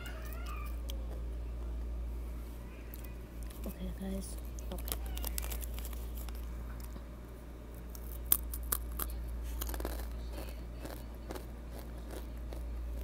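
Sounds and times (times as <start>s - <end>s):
steady low hum: 0.0s - 13.0s
chips being chewed: 4.4s - 7.0s, 7.8s - 13.0s.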